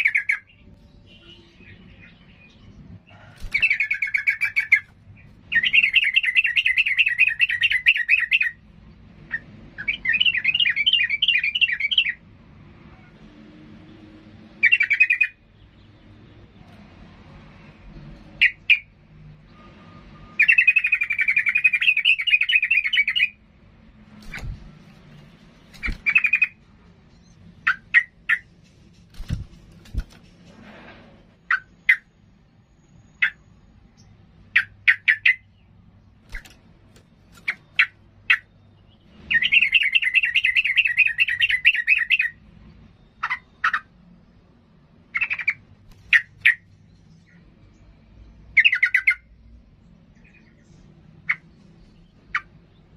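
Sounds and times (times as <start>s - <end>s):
bird chattering repeated notes: 0.0s - 0.7s, 3.4s - 8.6s, 14.6s - 15.5s, 18.3s - 19.0s, 20.2s - 23.4s, 25.6s - 30.1s, 31.4s - 32.3s, 33.1s - 33.6s, 34.4s - 42.4s, 43.0s - 44.0s, 45.0s - 46.7s, 48.5s - 49.4s, 51.2s - 52.9s.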